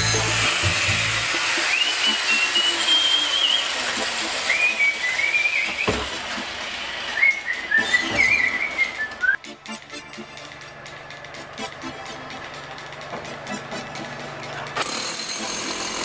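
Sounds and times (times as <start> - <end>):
person whistling a tune: 1.6 - 3.8, 4.4 - 6.2, 7.1 - 9.5.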